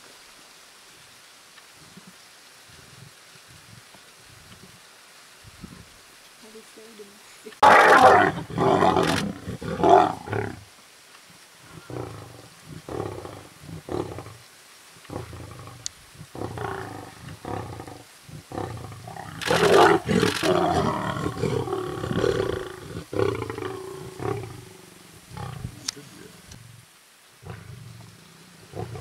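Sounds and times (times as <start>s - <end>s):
lions growling: 7.6s - 10.6s, 11.7s - 14.4s, 15.1s - 26.8s, 27.4s - 29.0s.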